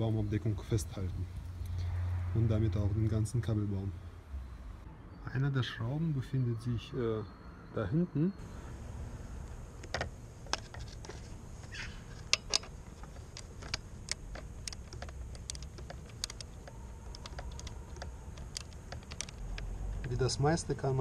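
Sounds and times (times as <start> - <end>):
hand tool clicking on bolt: 9.8 - 20.3.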